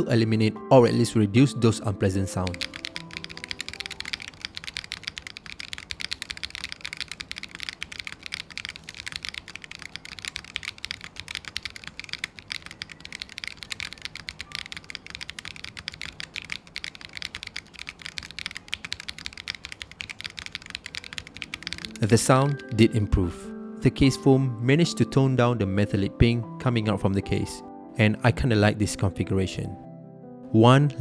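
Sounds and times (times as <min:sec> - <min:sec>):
mechanical keyboard typing: 0:02.2 - 0:23.3.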